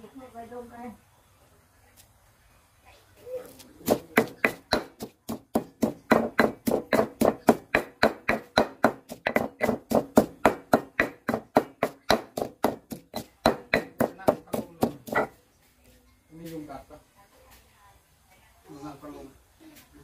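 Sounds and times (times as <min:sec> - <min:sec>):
stone pestle pounding in mortar: 0:03.8 - 0:15.4.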